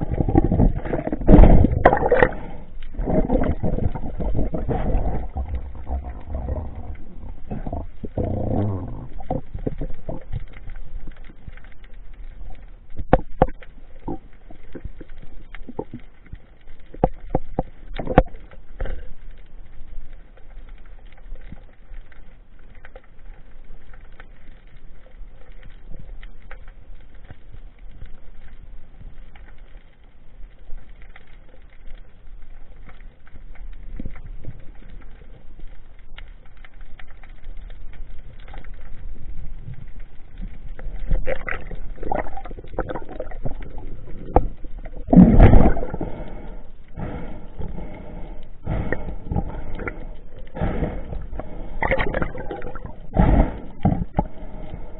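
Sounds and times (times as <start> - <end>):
underwater clicks and knocks: 0.0 - 19.1, 39.7 - 46.0, 51.8 - 53.0, 53.8 - 54.4
muffled underwater rush: 0.0 - 22.0, 30.4 - 54.9.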